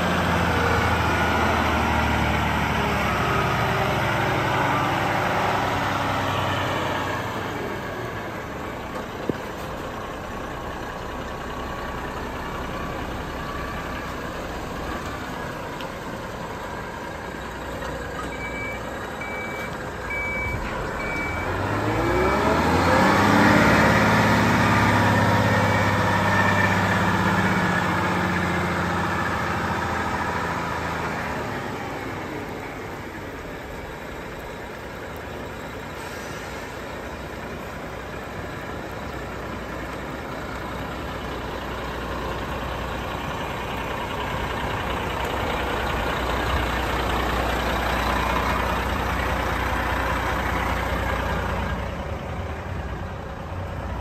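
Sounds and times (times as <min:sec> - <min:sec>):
truck diesel engine: 0:00.0 - 0:54.0
high beeps: 0:18.2 - 0:21.6.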